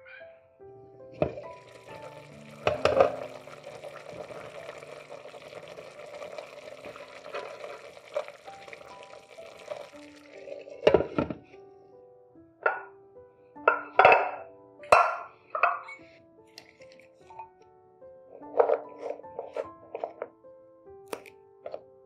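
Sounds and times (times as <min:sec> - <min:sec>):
soft background music: 0:00.0 - 0:22.0
food sizzling in a pan: 0:01.4 - 0:10.8.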